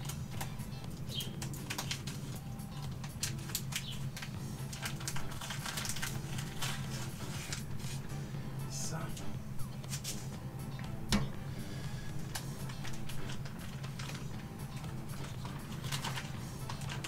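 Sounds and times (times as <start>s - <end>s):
plastic crinkling: 1.2s - 8.0s, 12.3s - 17.0s.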